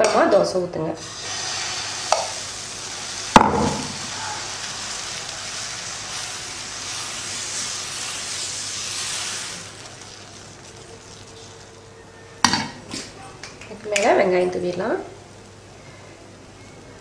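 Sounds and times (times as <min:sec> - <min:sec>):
batter sizzling on hot pan: 0:01.0 - 0:11.9.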